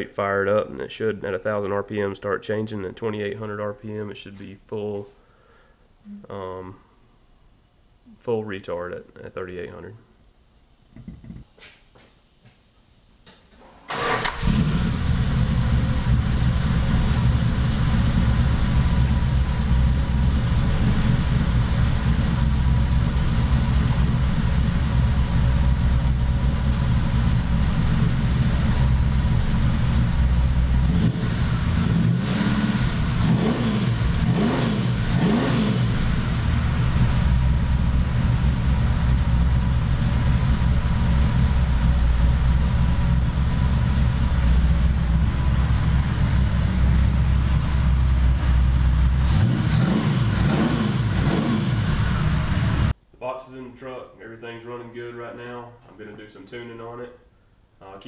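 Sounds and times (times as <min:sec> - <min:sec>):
engine revving: 0:13.9 - 0:52.9
pickup truck engine idling: 0:14.0 - 0:31.9, 0:35.9 - 0:49.5.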